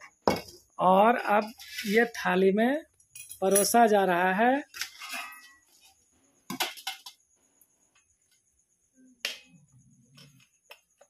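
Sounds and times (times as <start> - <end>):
steel spoon clinking on plates: 4.8 - 5.6.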